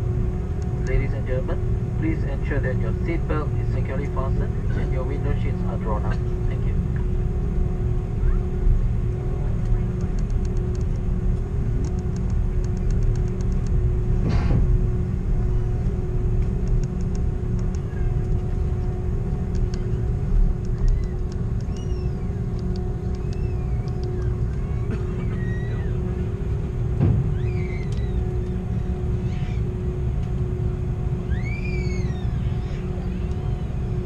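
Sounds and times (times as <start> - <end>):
airliner cabin rumble and hum: 0.0 - 34.0
faint rapid clicking: 20.6 - 21.9.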